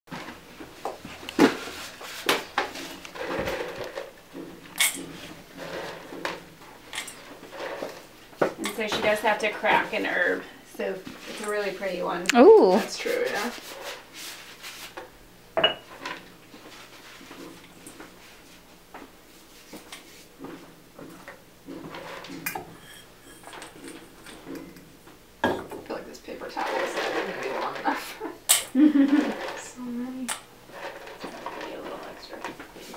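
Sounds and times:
utensils clattering against metal bowl: 2.4 - 10.1, 20.5 - 29.8, 30.7 - 32.9.

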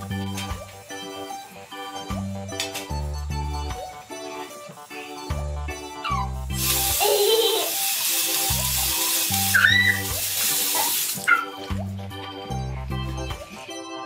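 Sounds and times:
background music: 0.0 - 14.0
tap water pouring into basin: 6.6 - 11.4
brief high squeals: 9.5 - 10.0.

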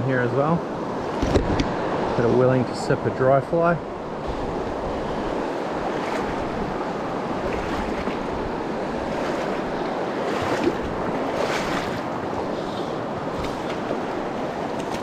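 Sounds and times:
wind buffeting microphone: 0.8 - 2.4, 3.9 - 15.0
water rushing over stones: 5.0 - 15.0.

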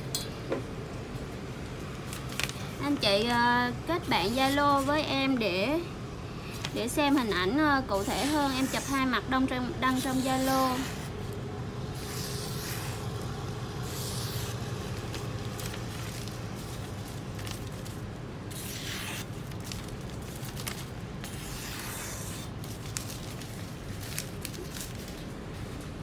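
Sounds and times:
steady low hum: 0.0 - 26.0
paper rustling: 2.1 - 2.7, 14.2 - 25.9
knife cutting paper: 12.0 - 13.1, 18.5 - 23.3.

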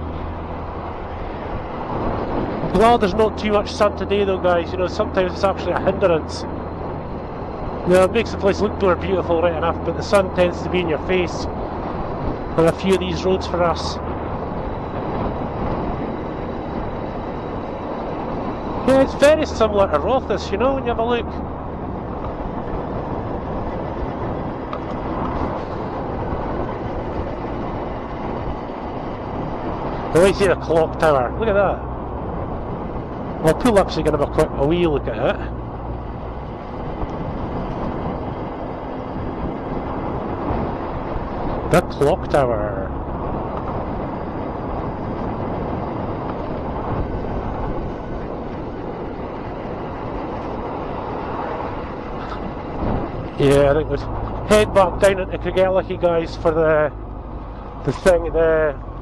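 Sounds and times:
motorcycle engine rumble: 0.0 - 59.0
wind and road noise: 0.0 - 59.0.

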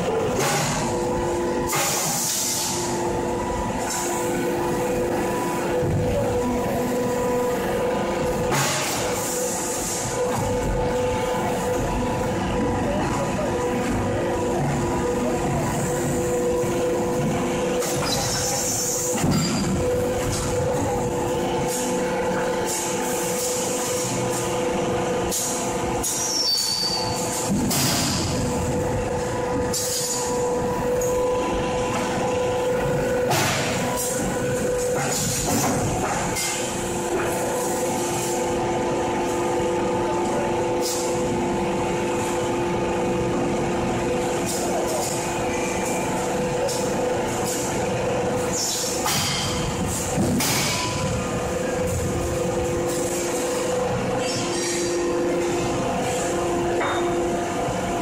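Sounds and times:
brief high squeal: 26.2 - 27.2.

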